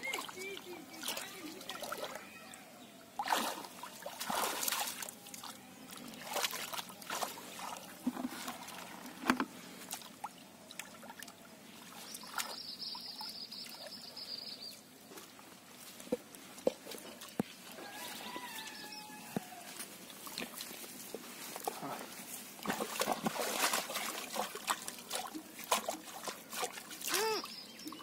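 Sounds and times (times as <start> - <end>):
hands sloshing in muddy water: 3.2 - 12.6, 20.0 - 28.0.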